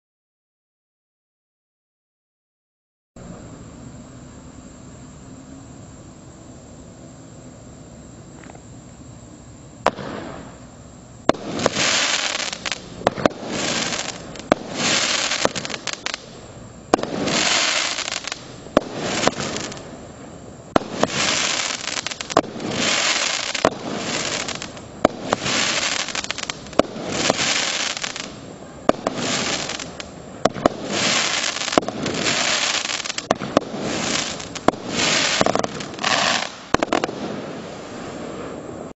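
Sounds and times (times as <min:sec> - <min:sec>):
firework bangs: 0:09.8 - 0:38.9
firework stars crackling: 0:09.8 - 0:38.9.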